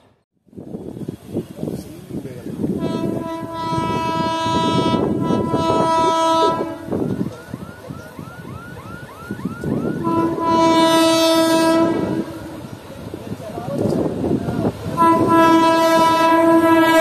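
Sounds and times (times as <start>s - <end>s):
train horn blasts: 2.7s - 7.2s, 9.8s - 12.8s, 14.8s - 17.0s.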